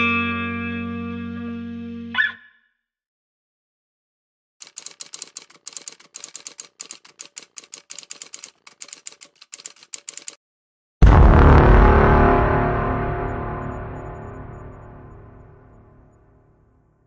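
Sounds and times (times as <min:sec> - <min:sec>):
typewriter keys clacking: 0:04.6 - 0:10.4
deep ringing hit: 0:11.0 - 0:16.6.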